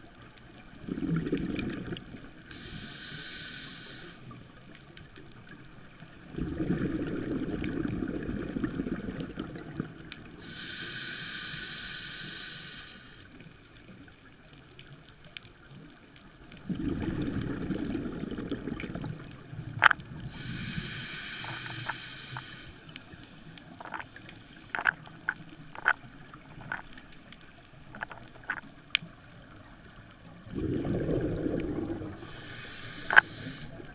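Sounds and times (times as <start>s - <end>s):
exhaled bubbles underwater: 0.0s - 3.2s, 5.3s - 10.6s, 15.9s - 27.1s, 27.8s - 33.9s
regulator inhale hiss: 2.4s - 4.5s, 10.4s - 13.6s, 20.2s - 23.1s, 30.6s - 33.9s
sharp clicks underwater: 16.1s - 29.4s, 30.6s - 33.9s.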